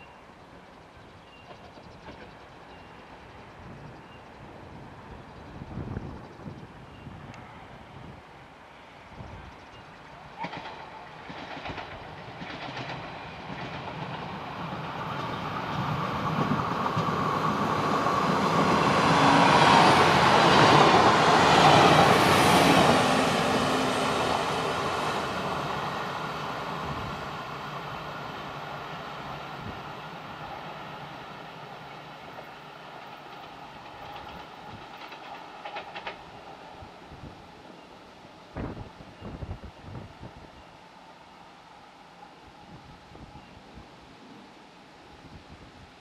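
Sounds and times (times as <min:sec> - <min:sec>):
train approaching: 0:00.0 - 0:45.2
wheels clicking over rail joints: 0:09.5 - 0:14.4, 0:32.3 - 0:36.5.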